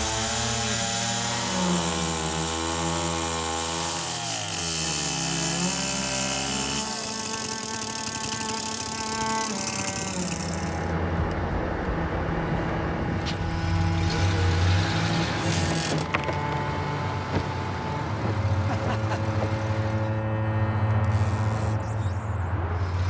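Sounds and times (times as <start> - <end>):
chainsaw cutting: 0.0 - 11.0, 13.3 - 21.6
truck engine running: 7.6 - 20.8.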